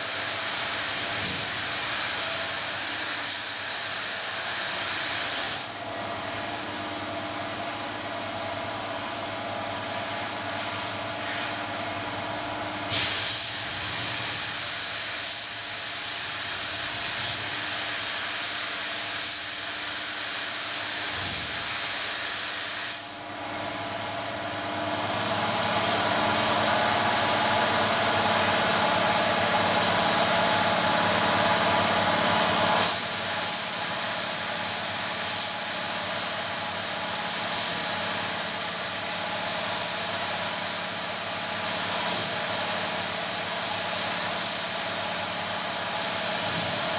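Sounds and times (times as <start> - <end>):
spray gun hissing: 0.0 - 5.8, 12.9 - 23.2, 32.8 - 46.9
steady machine hum: 0.0 - 22.0, 23.0 - 46.9.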